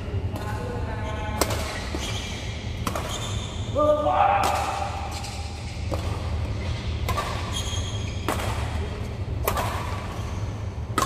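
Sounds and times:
steady low hum: 0:00.0 - 0:11.0
racket striking shuttlecock: 0:01.4 - 0:03.4, 0:04.4 - 0:08.8, 0:09.4 - 0:10.3.

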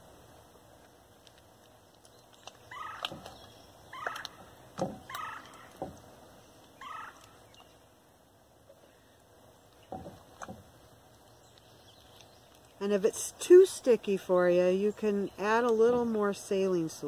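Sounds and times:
slime squelching: 0:00.8 - 0:07.8.

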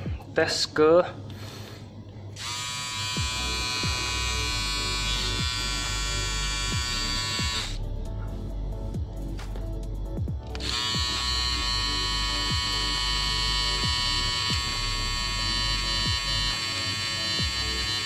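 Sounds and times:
trimmer motor buzzing: 0:02.4 - 0:07.8, 0:10.5 - 0:18.0.

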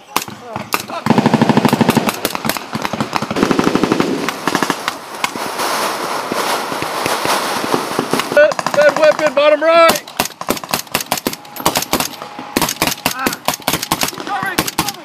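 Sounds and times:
single gunshots: 0:00.0 - 0:05.4, 0:09.9 - 0:15.0
automatic gunfire bursts: 0:00.1 - 0:05.0, 0:07.0 - 0:15.0.

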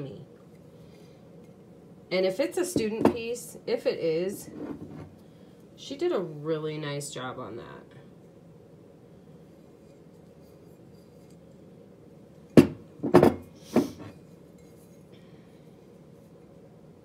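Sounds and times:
ceramic mugs knocking on wooden table: 0:12.6 - 0:14.1.

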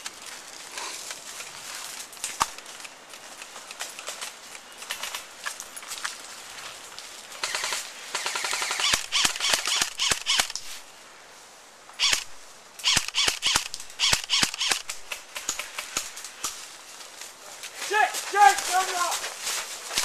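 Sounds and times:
airsoft rifles firing: 0:07.4 - 0:10.5, 0:12.9 - 0:16.6.

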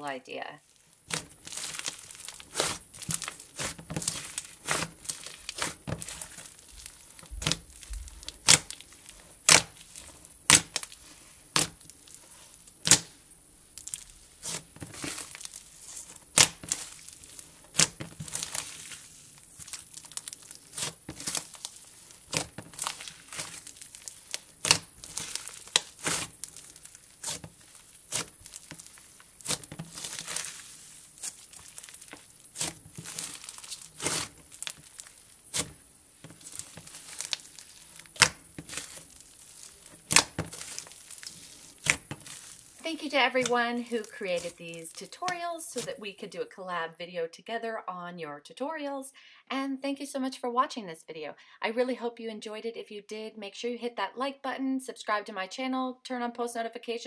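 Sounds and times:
slime crackling and popping: 0:00.6 - 0:46.0.

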